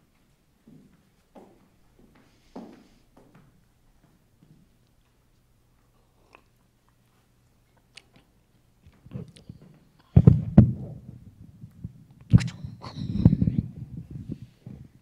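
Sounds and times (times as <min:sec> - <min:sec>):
faint hum: 0:00.0 - 0:15.0
microphone handling thumps and rubbing: 0:10.2 - 0:15.0.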